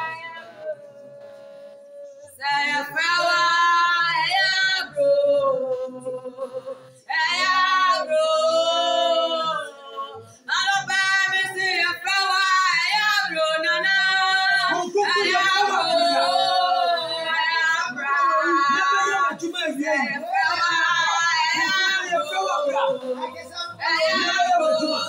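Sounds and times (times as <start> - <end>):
women singing worship song: 0.0 - 25.0.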